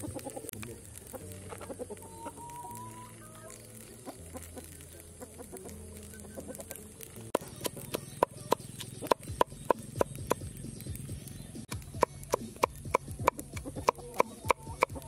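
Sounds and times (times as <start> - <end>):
chickens clucking: 0.0 - 15.0
cleaver chopping on wooden board: 11.7 - 15.0.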